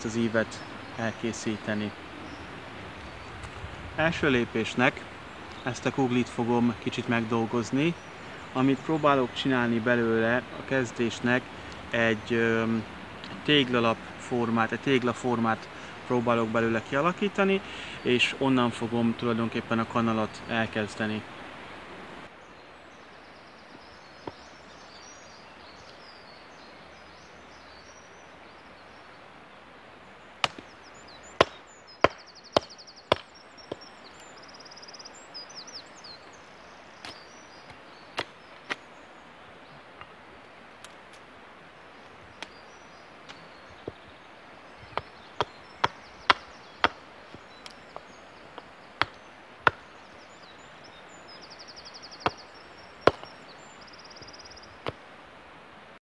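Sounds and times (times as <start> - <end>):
hatchet chopping wood: 30.4 - 30.7, 31.4 - 33.8, 44.9 - 47.0, 47.6 - 49.9, 53.0 - 53.3.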